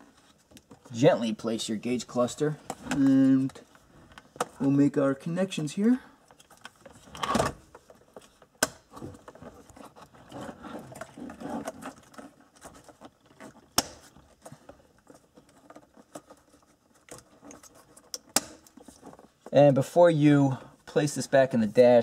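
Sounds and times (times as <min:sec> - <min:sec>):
plastic and wires rattling: 0:06.2 - 0:19.7.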